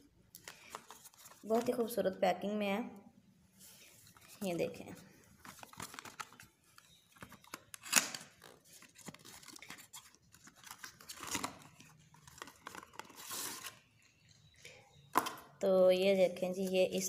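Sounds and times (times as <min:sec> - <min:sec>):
cardboard and paper rustling: 0:00.4 - 0:02.0, 0:03.8 - 0:13.9.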